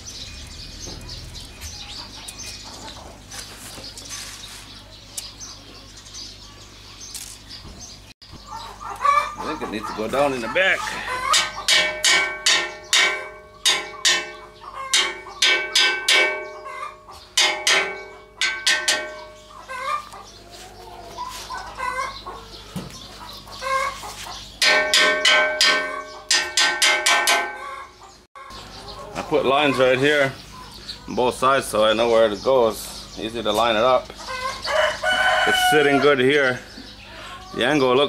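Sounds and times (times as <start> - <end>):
chickens clucking: 0.0 - 38.0
hammer striking steel wheel: 11.4 - 16.7, 17.4 - 19.5, 24.6 - 27.7.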